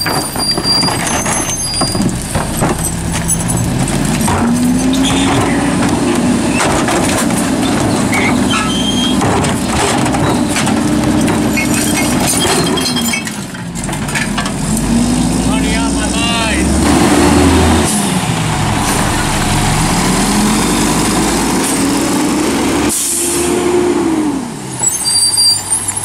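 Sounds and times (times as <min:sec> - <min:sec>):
plastic cart knocking and clattering: 0:00.0 - 0:08.4
garbage truck diesel engine revving: 0:00.0 - 0:24.8.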